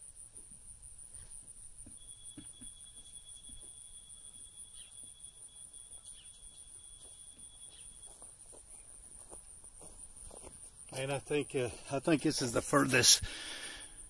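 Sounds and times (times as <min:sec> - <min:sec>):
lower insect trill: 0:00.0 - 0:14.0
insects trilling high: 0:01.2 - 0:14.0
faint footsteps on grass: 0:06.9 - 0:13.2.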